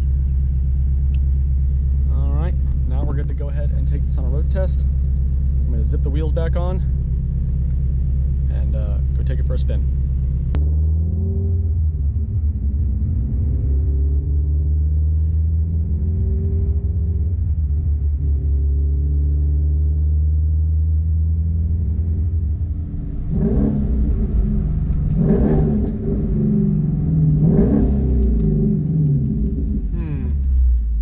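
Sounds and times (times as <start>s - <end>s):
car engine from inside cabin: 0.0s - 31.0s
engine revving surges: 8.5s - 30.8s.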